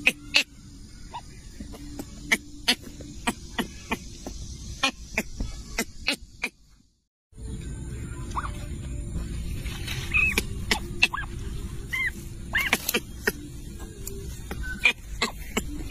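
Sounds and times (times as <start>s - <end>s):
low rumble: 7.4s - 14.5s.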